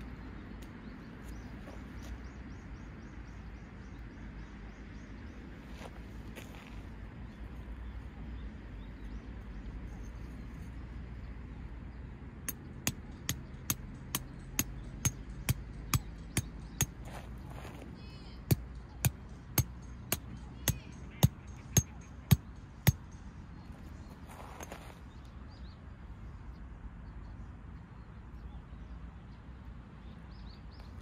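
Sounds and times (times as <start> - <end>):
sharp striking blows: 12.5 - 17.1.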